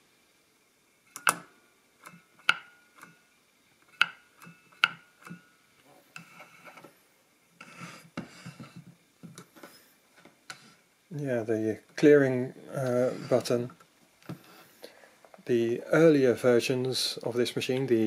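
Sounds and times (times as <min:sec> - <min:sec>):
machine scraping on table: 0:07.6 - 0:08.8, 0:13.0 - 0:13.6.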